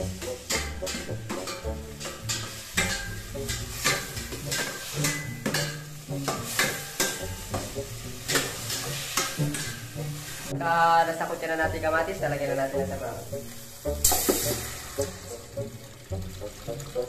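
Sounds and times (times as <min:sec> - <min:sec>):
metal spoon scraping a pot: 0:00.0 - 0:10.6
food sizzling: 0:00.0 - 0:17.0.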